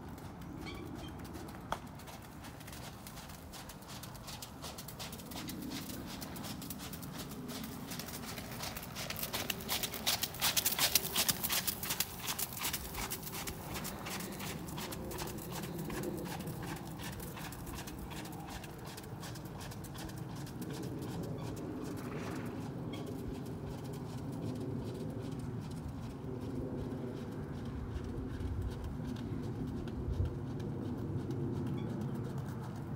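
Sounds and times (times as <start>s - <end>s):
hoofbeats on wet gravel: 0.0s - 32.9s.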